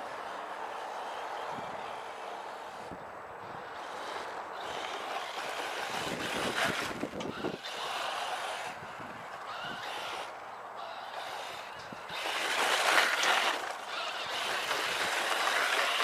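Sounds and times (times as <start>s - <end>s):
rc buggy driving over mulch: 0.0s - 16.0s
wind buffeting the microphone: 1.4s - 10.2s.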